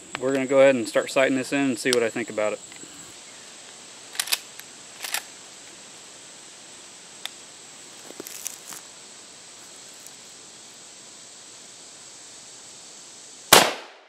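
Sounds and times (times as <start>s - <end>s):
high insect drone: 0.0s - 14.0s
rifle metallic clicks: 4.1s - 5.3s.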